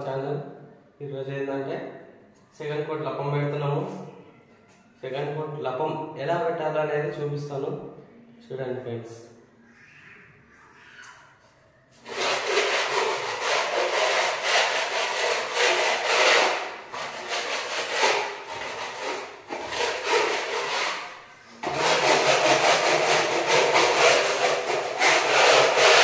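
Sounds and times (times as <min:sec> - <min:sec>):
putty blade scraping wall: 0:12.0 - 0:26.0.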